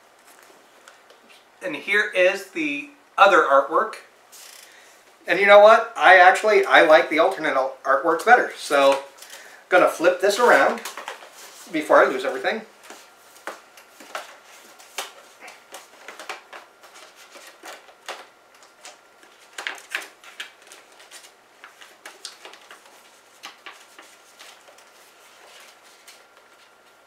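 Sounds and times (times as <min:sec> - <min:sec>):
paper sleeve rustling: 0:10.1 - 0:12.2, 0:12.9 - 0:27.0.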